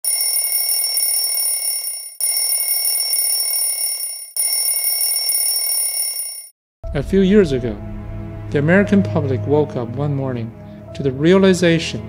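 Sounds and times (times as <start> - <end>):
bell ringing: 0.0 - 6.5.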